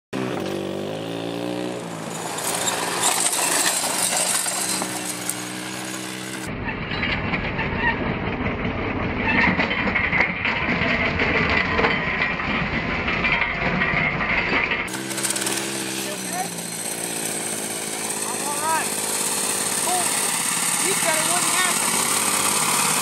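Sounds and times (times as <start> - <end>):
go-kart engine running: 0.1 - 6.6, 14.8 - 23.0.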